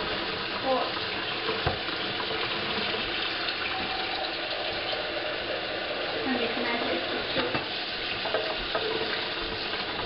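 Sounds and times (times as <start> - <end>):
faucet running into steel sink: 0.0 - 10.0.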